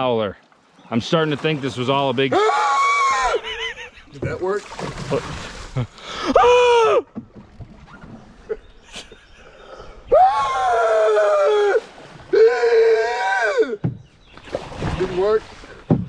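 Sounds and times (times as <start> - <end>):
men howling: 2.3 - 3.7, 6.2 - 7.1, 10.0 - 13.8.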